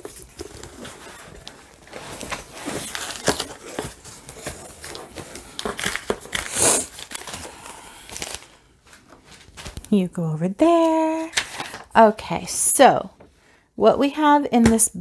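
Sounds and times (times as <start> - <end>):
cardboard box rustling: 0.0 - 7.4.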